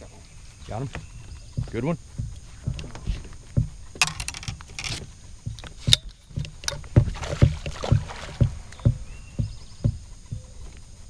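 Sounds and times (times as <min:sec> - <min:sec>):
dull knocks in metal boat: 0:05.7 - 0:10.6
fish splashing at water surface: 0:06.8 - 0:09.0.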